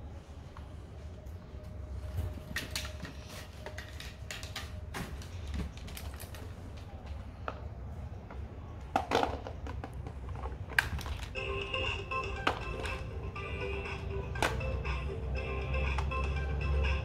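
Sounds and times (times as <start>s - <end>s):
plastic toy clatter: 8.9s - 11.4s.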